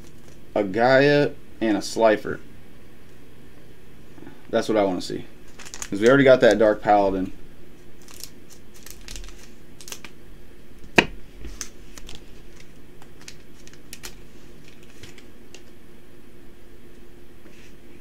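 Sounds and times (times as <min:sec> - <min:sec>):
card pack rustling: 0:05.4 - 0:07.3, 0:07.9 - 0:10.2, 0:11.4 - 0:15.8.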